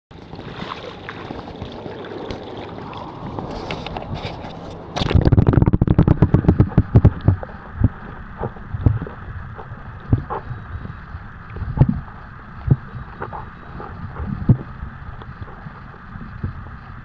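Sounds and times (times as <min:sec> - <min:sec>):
knocks and splashes: 0:00.1 - 0:10.9
water sloshing and gurgling: 0:00.1 - 0:17.0.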